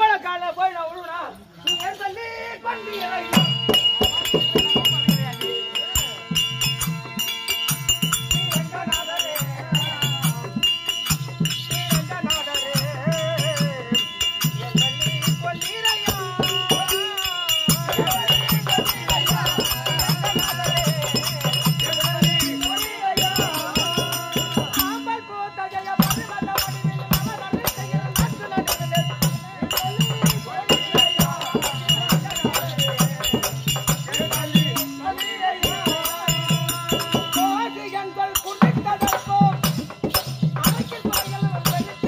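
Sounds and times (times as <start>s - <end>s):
small cymbals clinking: 1.6s - 2.2s, 2.8s - 42.0s
wavering reed melody: 1.6s - 42.0s
drum beating steady rhythm: 3.0s - 42.0s.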